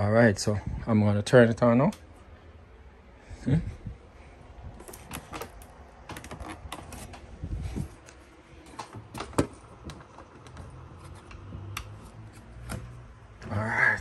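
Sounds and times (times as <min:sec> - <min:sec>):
cable connectors clicking: 0:08.0 - 0:13.0.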